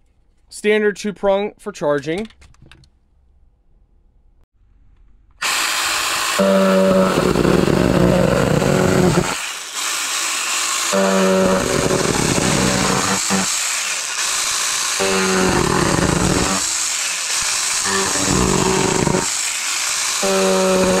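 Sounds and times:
chainsaw tearing cardboard: 0:05.4 - 0:21.0
mini chainsaw motor whine: 0:05.4 - 0:21.0.

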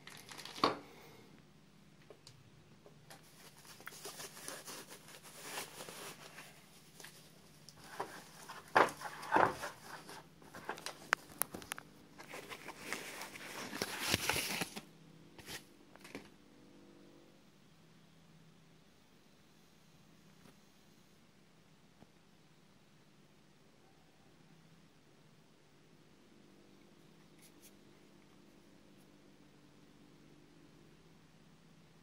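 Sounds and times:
foam packaging rustling: 0:00.0 - 0:00.8, 0:03.1 - 0:16.3.

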